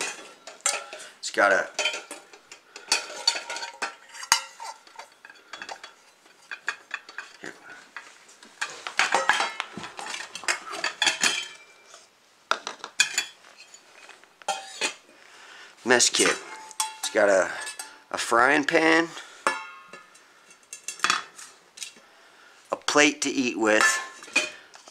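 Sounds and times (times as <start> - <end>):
metal cookware clanking and scraping: 0.0 - 12.1, 12.7 - 15.0, 16.0 - 18.3, 19.1 - 22.0, 23.7 - 24.9.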